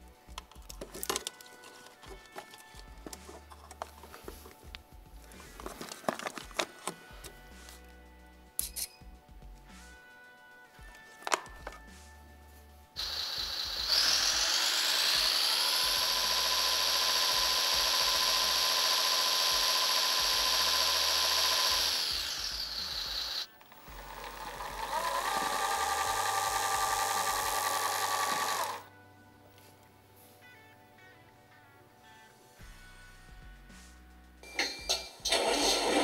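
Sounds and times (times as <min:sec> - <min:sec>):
small electric motor whirring: 0:13.0 - 0:28.9, 0:35.3 - 0:36.0.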